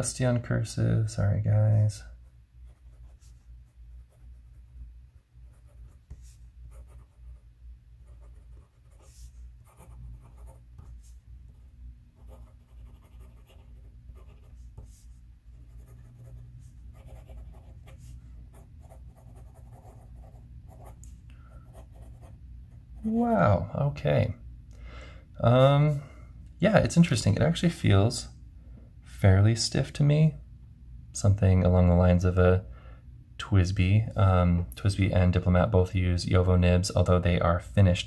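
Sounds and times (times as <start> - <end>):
low hum: 0.0 - 36.5.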